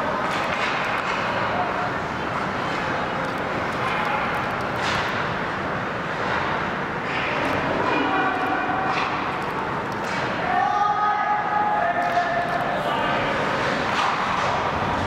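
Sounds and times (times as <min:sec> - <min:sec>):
hockey stick or puck clack: 0:00.2 - 0:01.5, 0:04.6 - 0:05.3, 0:06.2 - 0:10.5, 0:13.6 - 0:15.0.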